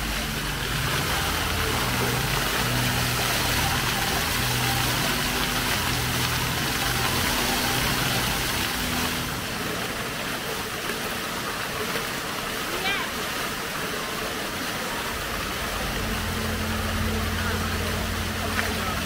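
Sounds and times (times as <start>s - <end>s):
low hum: 0.0s - 10.9s, 15.1s - 19.0s
fountain jets splashing: 0.0s - 19.0s.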